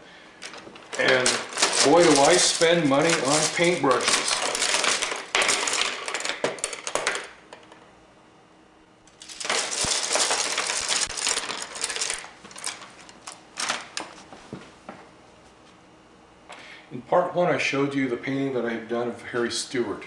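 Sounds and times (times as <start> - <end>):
paintbrushes rattling together: 0.4 - 7.3, 9.2 - 14.1.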